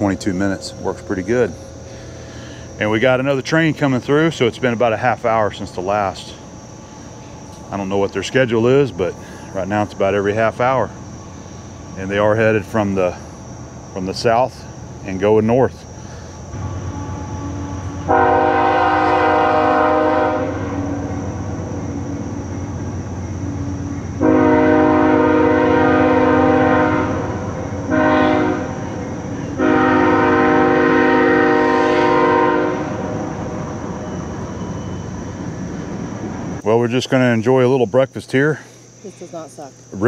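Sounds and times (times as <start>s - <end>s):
passing train rumble: 0.0s - 37.6s
train horn blasts: 16.5s - 22.7s, 23.3s - 35.0s.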